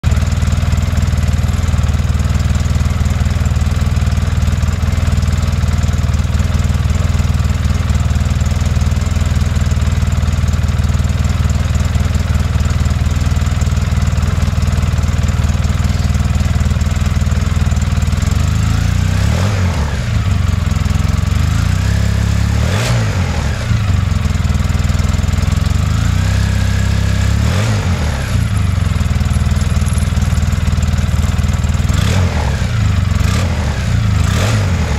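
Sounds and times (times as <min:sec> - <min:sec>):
atv engine idling: 0:00.0 - 0:34.9
engine revving: 0:18.1 - 0:24.5, 0:25.4 - 0:34.9.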